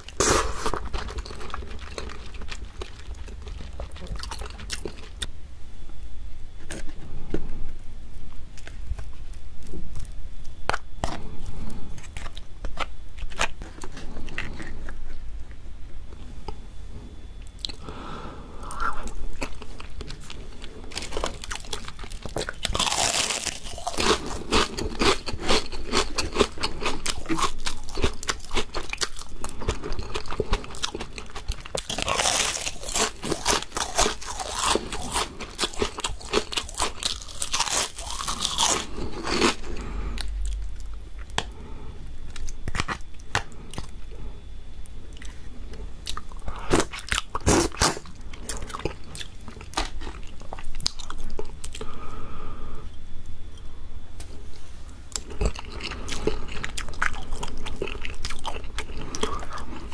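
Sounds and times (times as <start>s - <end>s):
crunching of fried chips: 0.0s - 5.3s, 8.6s - 15.2s, 18.8s - 41.6s, 42.2s - 44.0s, 46.0s - 51.9s, 55.1s - 59.9s
soft chewing: 0.0s - 5.3s, 6.5s - 16.6s, 17.2s - 52.1s, 53.3s - 59.9s.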